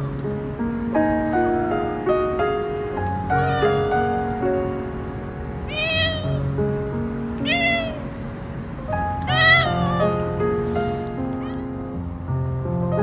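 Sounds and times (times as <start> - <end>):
soft background music: 0.0 - 13.0
cat meowing: 3.2 - 4.3, 5.6 - 6.6, 7.4 - 8.2, 9.0 - 10.4, 11.4 - 11.8.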